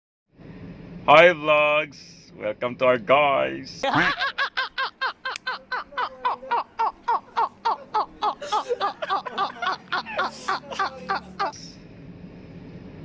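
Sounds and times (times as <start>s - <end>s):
men laughing hard: 3.8s - 11.7s.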